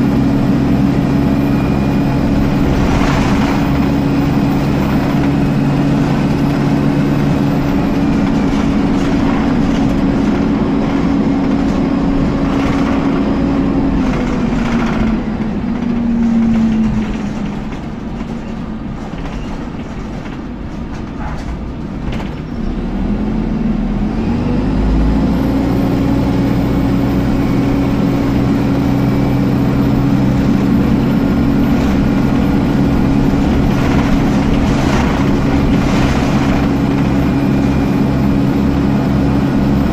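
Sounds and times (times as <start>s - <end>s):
bus cooling fan whining: 0.0s - 39.9s
bus engine and road noise: 0.0s - 39.9s.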